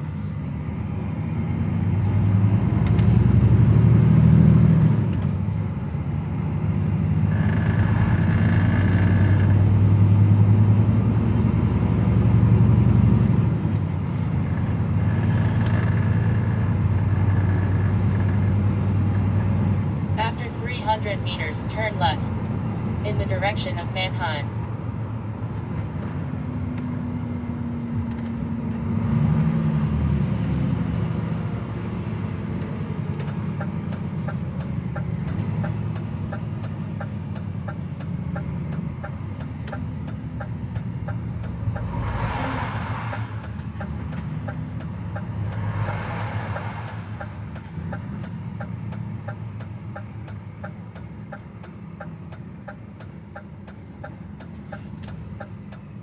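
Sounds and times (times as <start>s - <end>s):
truck diesel engine running: 0.0s - 29.2s, 29.8s - 56.0s
turn signal ticking: 32.1s - 42.5s, 43.1s - 56.0s.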